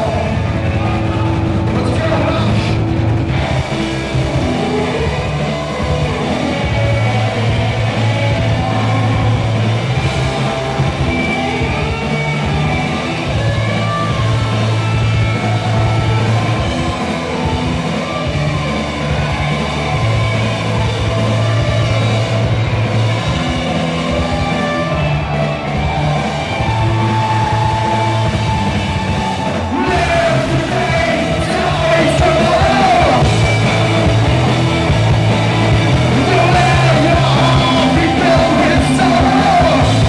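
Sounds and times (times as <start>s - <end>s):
electric guitar: 0.0s - 40.0s
rock band playing live: 0.0s - 40.0s.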